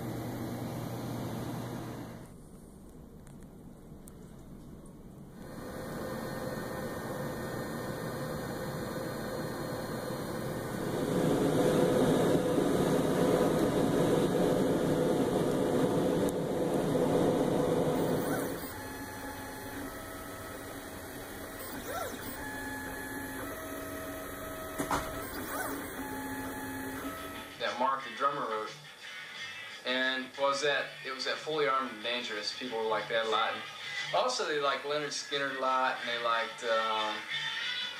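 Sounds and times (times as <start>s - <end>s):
stepper motors whining: 5.4s - 27.6s
steady rushing noise: 10.7s - 18.0s.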